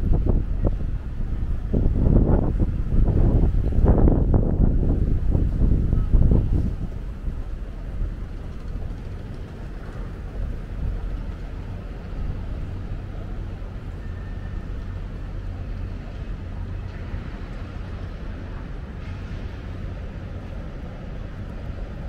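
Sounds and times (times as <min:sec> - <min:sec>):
engine hum: 0:00.0 - 0:22.0
street traffic rumble: 0:00.0 - 0:22.0.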